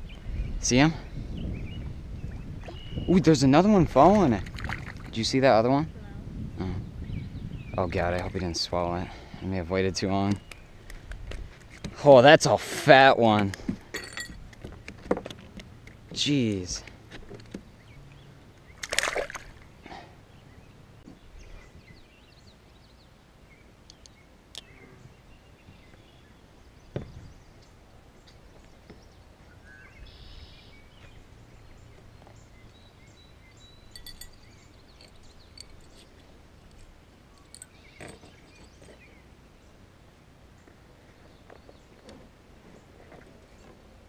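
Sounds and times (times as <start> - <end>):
fishing gear clicks and knocks: 13.4 - 17.6, 33.9 - 39.2.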